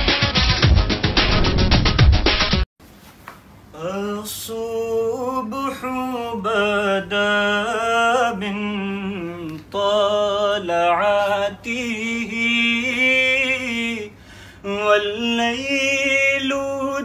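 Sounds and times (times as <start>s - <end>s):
man singing unaccompanied: 3.7s - 17.0s.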